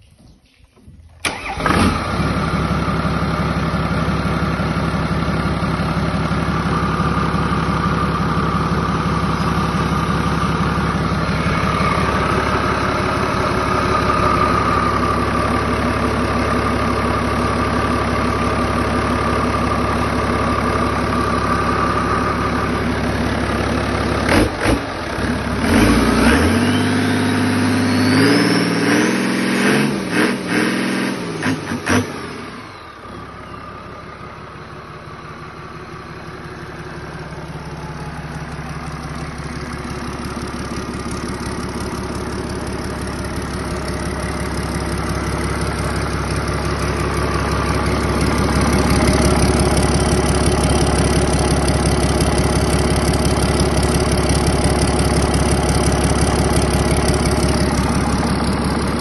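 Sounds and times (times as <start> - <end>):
engine whine: 1.1 - 59.0
diesel engine idling and revving: 1.2 - 59.0.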